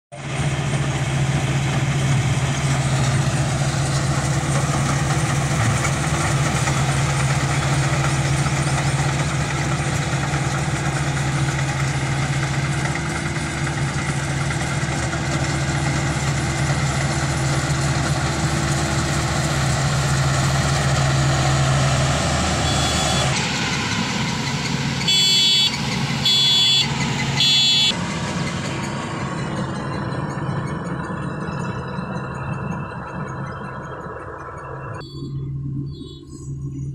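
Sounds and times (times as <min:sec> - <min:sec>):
combine harvester engine hum: 0:00.1 - 0:36.9
short beeps: 0:22.6 - 0:23.3, 0:35.0 - 0:36.6.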